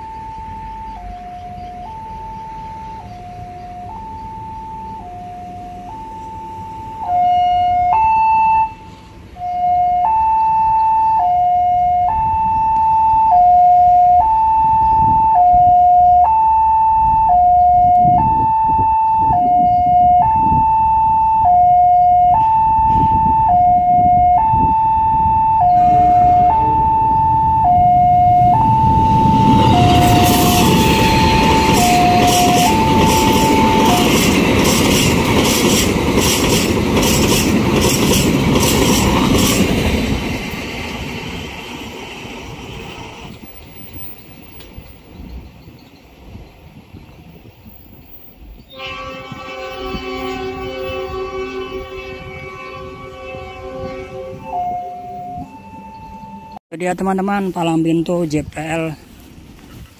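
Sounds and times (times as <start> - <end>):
level-crossing warning alarm: 0.0 - 41.4, 48.7 - 56.6
passenger train passing: 0.0 - 59.9
train wheel clatter: 29.4 - 45.2.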